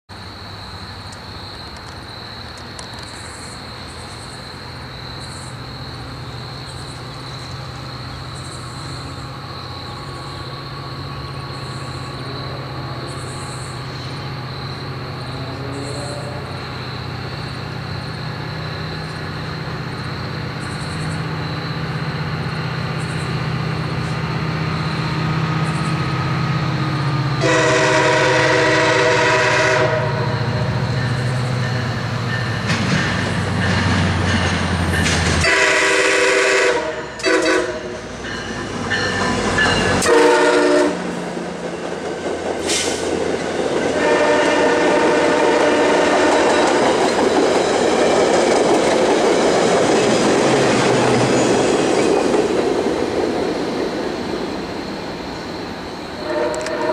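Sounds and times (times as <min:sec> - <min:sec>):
train rumbling: 0:00.1 - 0:56.9
train horn blast: 0:15.4 - 0:16.6, 0:27.4 - 0:30.6, 0:35.4 - 0:38.0, 0:39.8 - 0:41.2, 0:43.9 - 0:46.8, 0:56.2 - 0:56.9.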